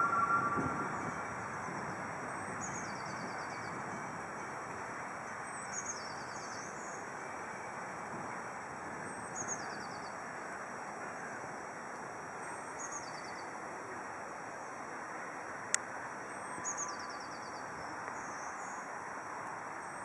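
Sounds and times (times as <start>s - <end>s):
songbird singing: 0.0s - 1.7s.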